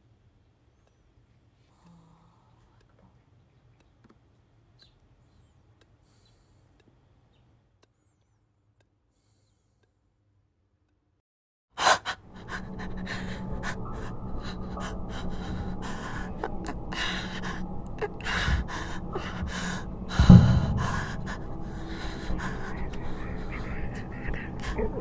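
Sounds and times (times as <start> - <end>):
person breathing hard: 11.8 - 25.0
low hum: 12.2 - 25.0
heavy thump: 20.2 - 21.8.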